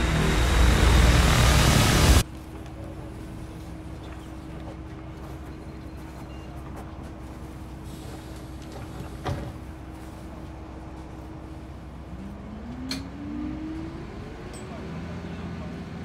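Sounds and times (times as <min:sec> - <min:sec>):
rising engine tone: 0:00.0 - 0:02.2, 0:12.0 - 0:15.6
bus engine humming: 0:00.0 - 0:06.0, 0:06.6 - 0:16.0.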